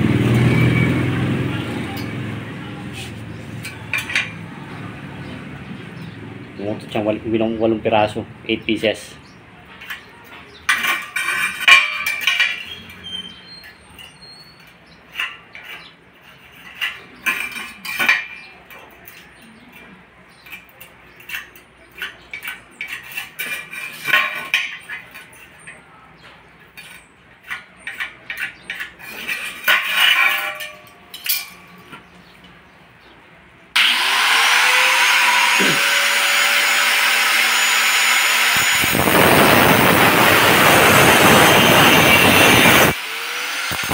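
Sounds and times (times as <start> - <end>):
angle grinder whine: 0.0 - 2.5, 33.8 - 43.9
grinder disc cutting metal tube: 0.1 - 2.4, 10.7 - 19.6, 20.6 - 25.7, 26.8 - 31.7, 33.8 - 43.9
metal tubing clinks and knocks: 10.7 - 13.0.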